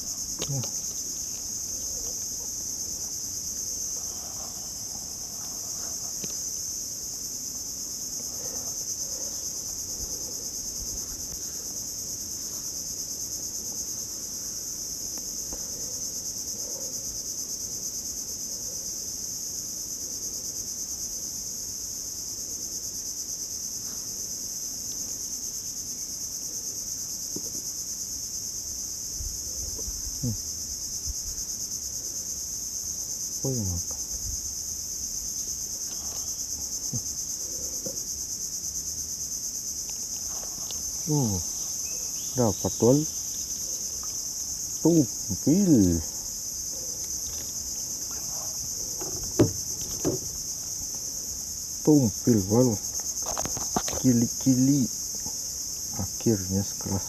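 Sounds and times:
insects shrilling: 0.0 - 16.4, 27.7 - 57.0
handling noises: 47.0 - 51.1.

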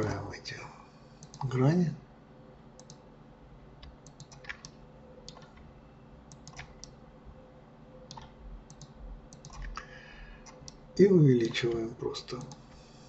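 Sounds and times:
faint steady hum: 0.0 - 13.0
keyboard and mouse clicking: 1.2 - 1.5, 2.8 - 3.0, 3.8 - 5.7, 6.3 - 7.0, 8.1 - 10.8, 11.4 - 12.7.

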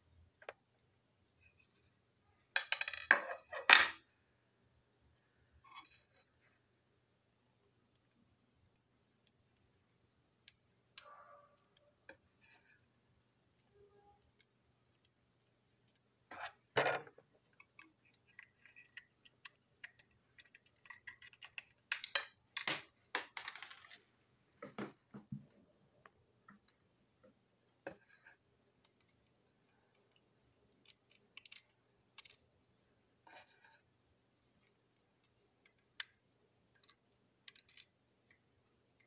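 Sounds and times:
plastic toy train clicks and rattles: 17.6 - 22.3, 36.7 - 37.9.

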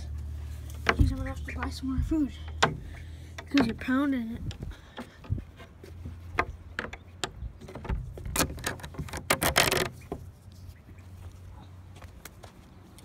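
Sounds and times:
scraping rustle: 0.1 - 11.5
clicks and knocks of handling: 0.6 - 1.8, 2.4 - 10.2.

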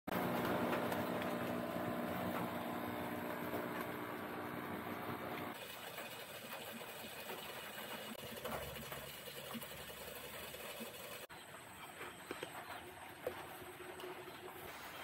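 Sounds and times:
aquarium pump humming: 0.1 - 5.6.

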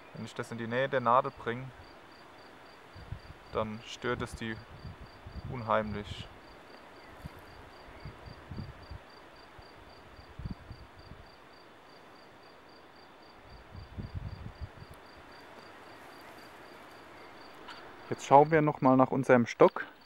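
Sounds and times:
insect chirping: 0.0 - 20.0
wind rumble on microphone: 2.9 - 6.4, 7.0 - 11.4, 13.5 - 15.4.

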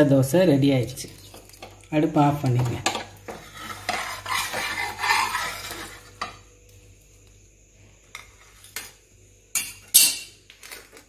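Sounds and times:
metal spatula scraping griddle: 3.3 - 6.4.

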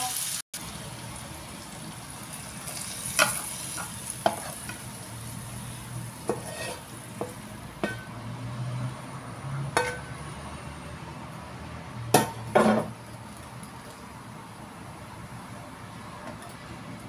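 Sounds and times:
pan sizzling: 0.0 - 8.2
spatula scraping and knocking wok: 2.7 - 8.9, 9.6 - 10.4, 12.1 - 14.1.

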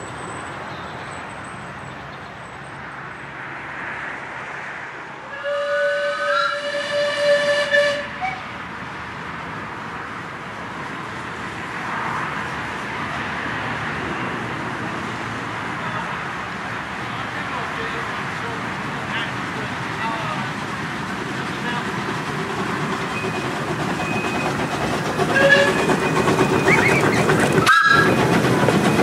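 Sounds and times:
steam locomotive whistle: 5.3 - 8.6, 25.2 - 28.3.

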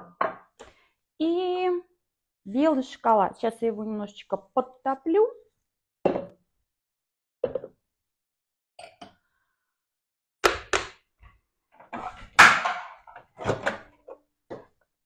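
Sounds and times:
kitchen things knocking: 12.0 - 13.9.

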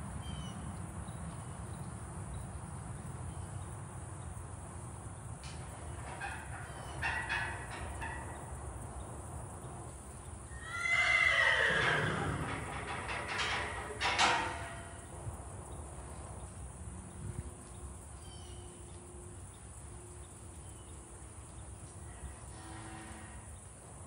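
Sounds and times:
metal gate latch clanking: 6.0 - 8.4, 12.3 - 15.0.

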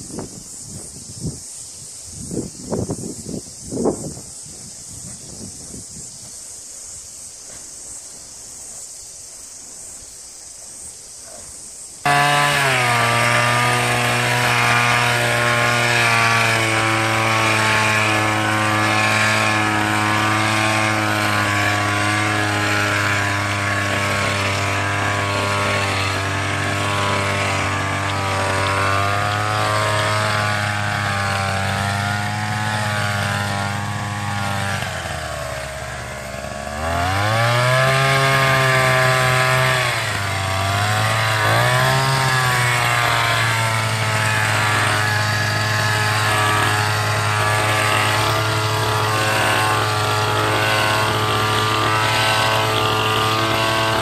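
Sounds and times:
hedge trimmer engine running: 12.0 - 54.0.

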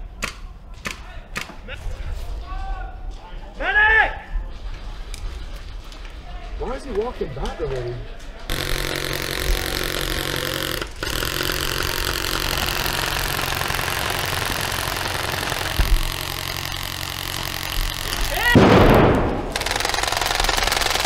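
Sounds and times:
airsoft guns firing full auto: 8.5 - 21.0.

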